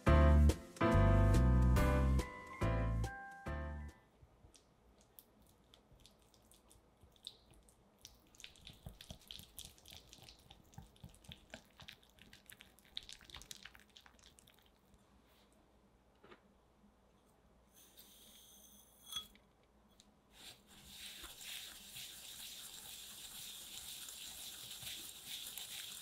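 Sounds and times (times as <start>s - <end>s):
whisk creaming butter in bowl: 20.8s - 26.0s.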